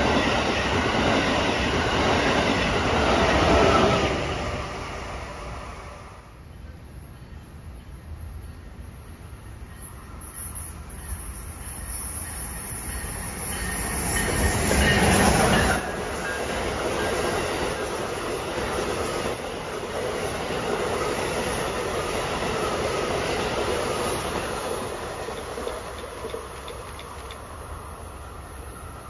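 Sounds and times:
passenger train passing at speed: 0:00.0 - 0:29.0.

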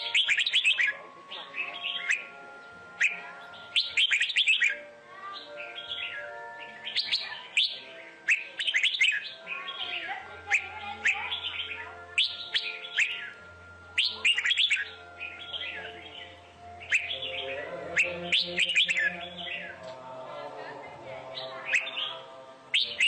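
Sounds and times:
bulbuls chirping and whistling: 0:00.0 - 0:19.8, 0:21.3 - 0:23.0.

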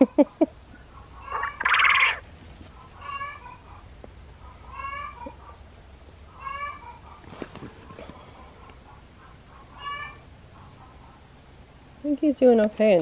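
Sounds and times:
quail calling: 0:00.8 - 0:05.6, 0:07.9 - 0:11.2.

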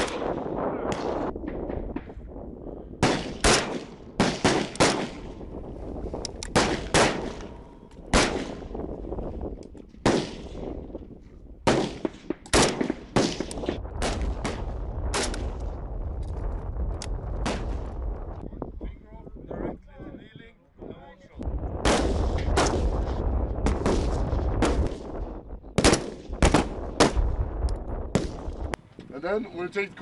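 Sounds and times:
rifle shots: 0:00.0 - 0:02.1, 0:03.0 - 0:05.4, 0:06.4 - 0:08.8, 0:10.0 - 0:10.8, 0:11.6 - 0:15.6, 0:17.4 - 0:17.9, 0:21.8 - 0:25.2, 0:25.8 - 0:27.4, 0:28.1 - 0:28.6
low rumble: 0:13.5 - 0:20.3, 0:21.4 - 0:28.8.

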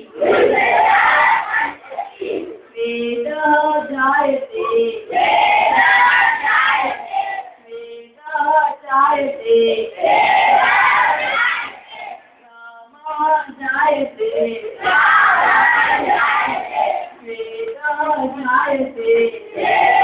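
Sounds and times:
children singing: 0:00.0 - 0:02.6, 0:04.6 - 0:07.6, 0:09.8 - 0:12.2, 0:14.3 - 0:17.2, 0:19.5 - 0:20.0
children shouting in unison: 0:10.3 - 0:12.1.

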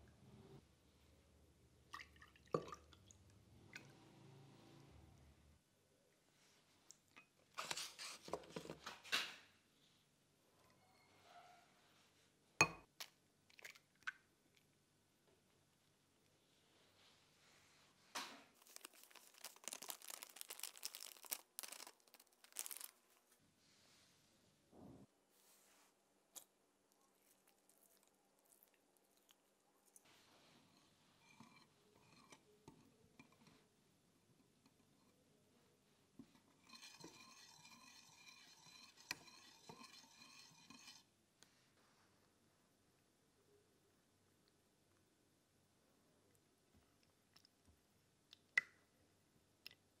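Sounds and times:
plastic crinkling: 0:18.5 - 0:23.4
plastic sachet tearing: 0:18.6 - 0:23.2
whisk clinking against glass bowl: 0:36.6 - 0:41.0.

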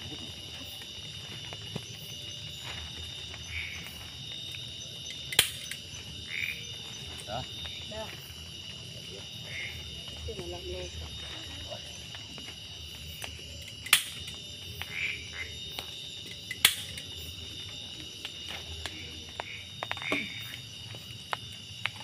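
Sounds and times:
insects droning: 0:00.0 - 0:22.0
frog calls: 0:03.3 - 0:04.2, 0:04.8 - 0:08.2, 0:09.1 - 0:12.1, 0:13.9 - 0:15.9, 0:18.8 - 0:21.0.

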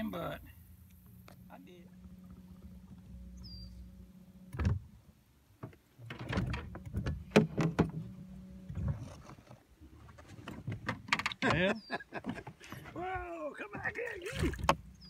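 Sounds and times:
low steady hum: 0:00.0 - 0:15.0
knocks and clatter on a boat: 0:04.5 - 0:15.0.

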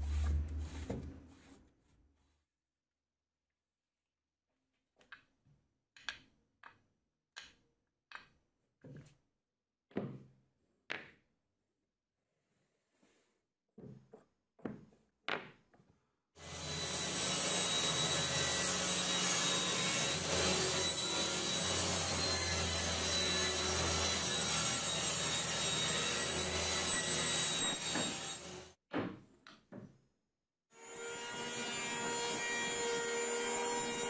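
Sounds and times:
table saw running: 0:16.4 - 0:28.8.

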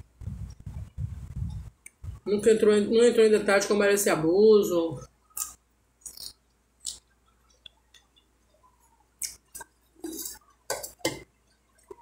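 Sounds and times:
chewing salad: 0:05.3 - 0:08.6, 0:09.2 - 0:11.0.

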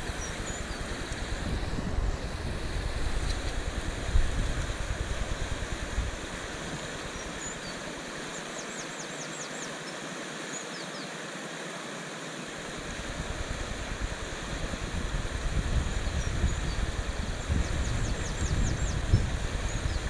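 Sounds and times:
wind buffeting microphone: 0:00.0 - 0:07.4, 0:12.9 - 0:20.0
water rushing over a weir: 0:00.0 - 0:20.0.

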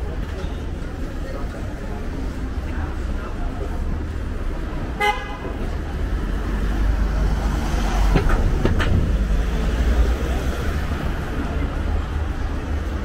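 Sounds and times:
passing vehicles rumble: 0:00.0 - 0:13.0.

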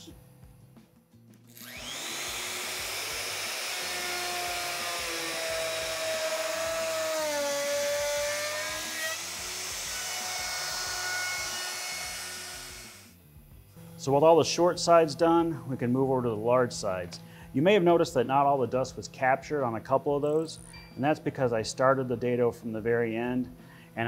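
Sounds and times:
router bit cutting plywood: 0:01.5 - 0:13.1
router motor running: 0:01.5 - 0:13.1
dust extractor rushing: 0:01.6 - 0:05.9.

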